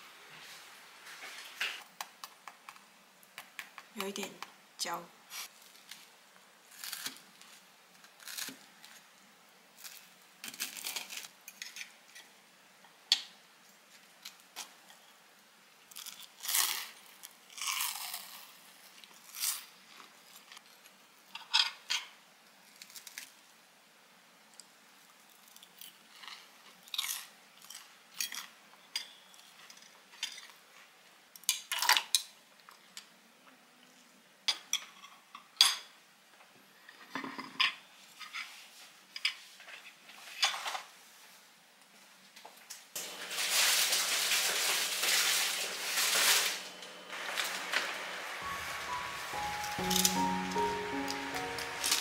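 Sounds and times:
toast being chewed: 15.9s - 20.8s.

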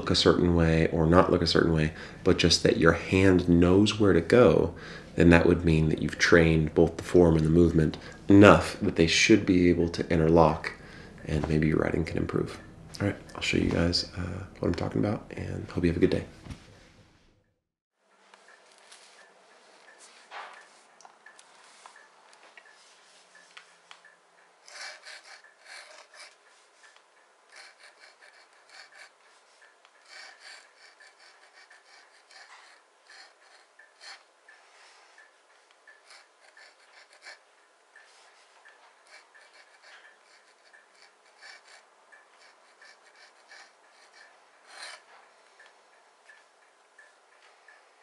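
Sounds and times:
pen nib scratching on paper: 24.6s - 34.3s, 35.9s - 37.4s, 38.1s - 45.3s.

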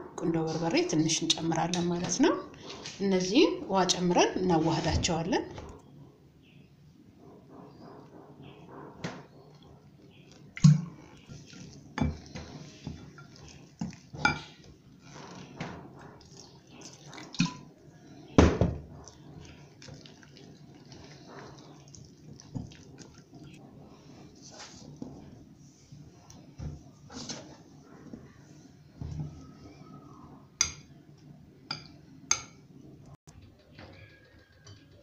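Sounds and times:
water pouring into a bowl: 16.2s - 17.7s, 19.0s - 23.6s.

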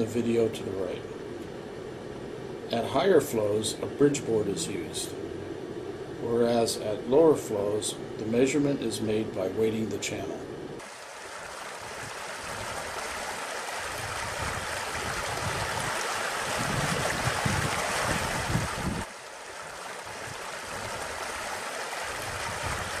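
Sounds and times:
floodwater rushing: 10.8s - 23.0s.

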